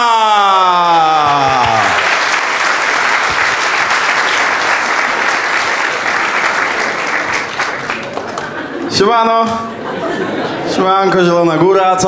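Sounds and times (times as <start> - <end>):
audience applauding: 0.4 - 8.8.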